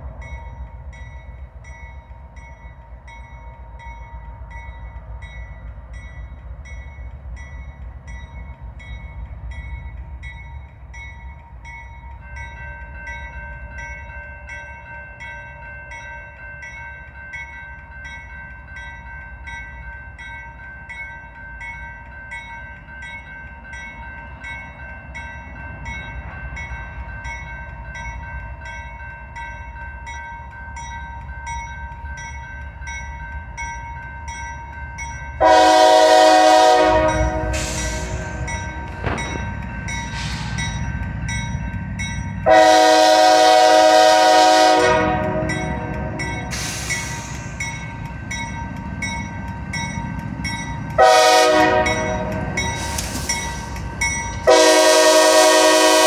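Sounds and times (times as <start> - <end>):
railroad crossing bell ringing: 0.0 - 56.0
diesel locomotive rumble: 32.2 - 56.0.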